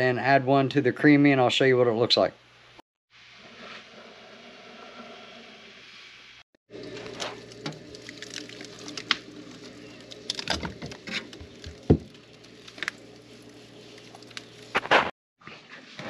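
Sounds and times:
freezer humming: 0:06.7 - 0:14.8.

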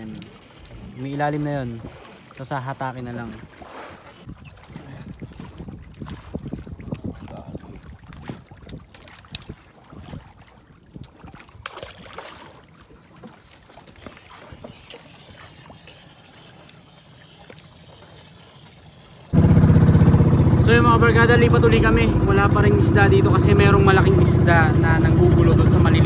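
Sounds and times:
small knocks and splashes: 0:00.0 - 0:19.4
water lapping against boat: 0:00.0 - 0:26.0
motorboat engine: 0:12.6 - 0:26.0.

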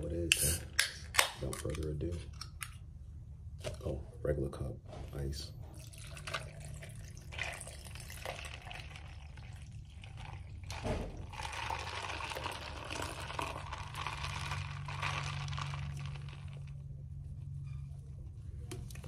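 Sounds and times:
drink pouring over ice: 0:05.8 - 0:16.8.

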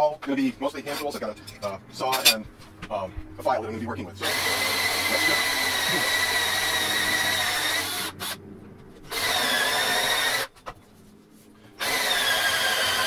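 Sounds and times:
cordless drill motor whine: 0:04.2 - 0:08.4, 0:09.1 - 0:10.5, 0:11.8 - 0:13.0.

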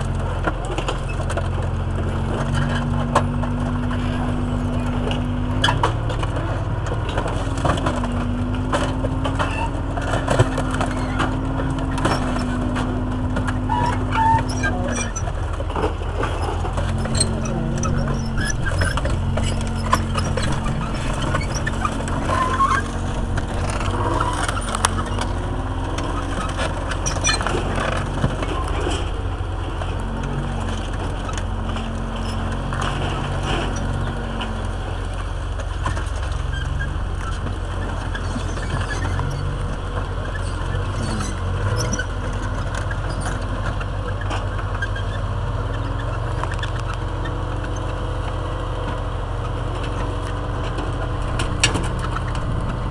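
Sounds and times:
metal clanks and crunches: 0:00.0 - 0:45.3, 0:49.5 - 0:52.9
tracked vehicle engine droning: 0:00.0 - 0:52.9.

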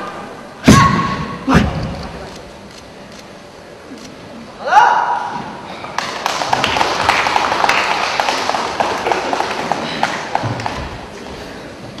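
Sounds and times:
crowd applause: 0:05.9 - 0:11.0.

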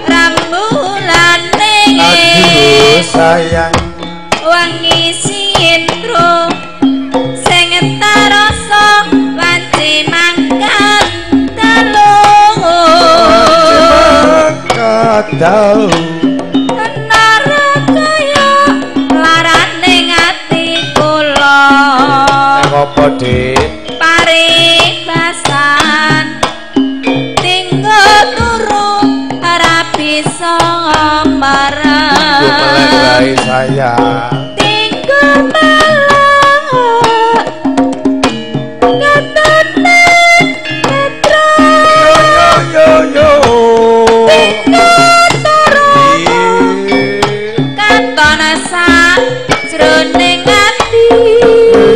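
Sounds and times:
hand drum strokes: 0:00.0 - 0:26.6, 0:27.2 - 0:51.9
gamelan melody notes: 0:00.0 - 0:51.9
melody with sliding bending notes: 0:37.6 - 0:51.9.

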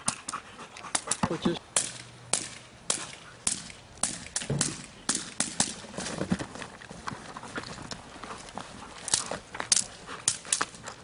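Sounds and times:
stick cracks: 0:01.0 - 0:05.8.

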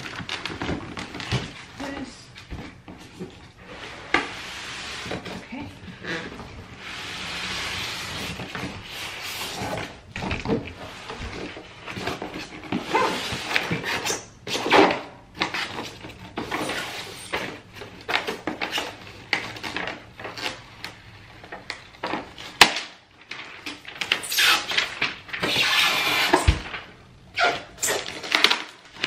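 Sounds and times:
foam and cardboard rubbing: 0:03.6 - 0:05.5, 0:06.7 - 0:10.0.

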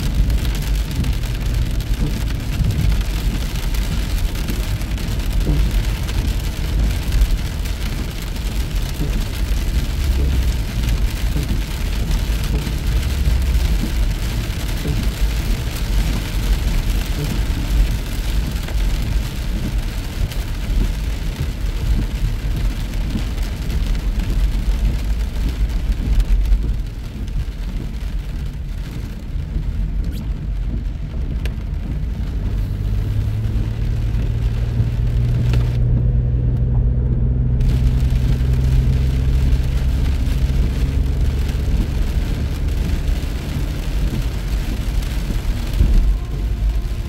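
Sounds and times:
rain and spray hissing: 0:00.0 - 0:47.0
tyres rumbling on wet road: 0:00.0 - 0:47.0
engine drone: 0:30.7 - 0:47.0.

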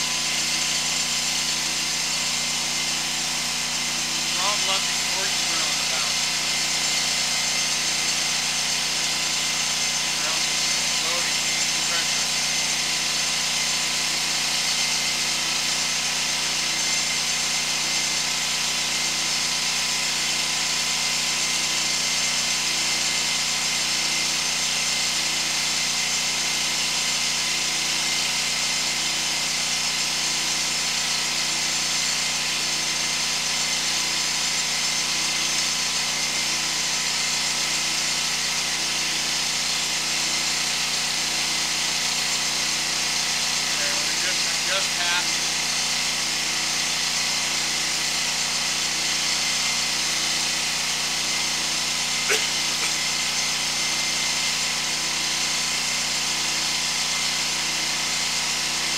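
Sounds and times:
high-pressure water hissing: 0:04.3 - 0:08.5, 0:10.1 - 0:13.6, 0:43.0 - 0:46.9, 0:49.9 - 0:54.5.

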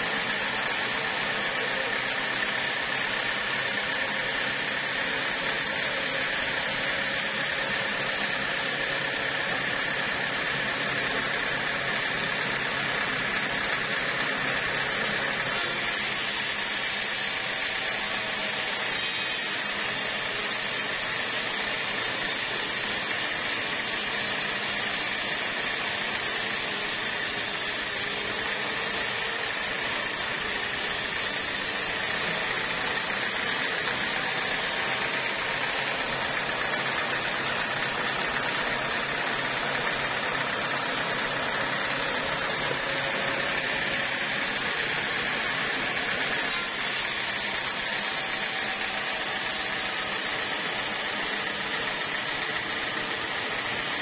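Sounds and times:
band saw hissing: 0:15.4 - 0:37.7, 0:46.3 - 0:54.0.

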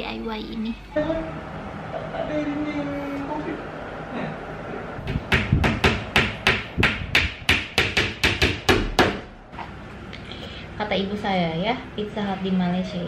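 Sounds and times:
hammer blows on wood panel: 0:05.0 - 0:09.3.

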